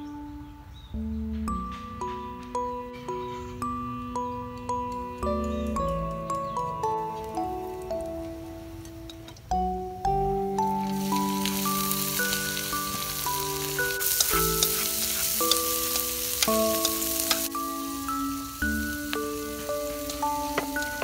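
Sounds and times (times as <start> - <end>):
mallet notes background music: 0.0 - 21.0
seafood sizzling in a wok: 10.8 - 21.0.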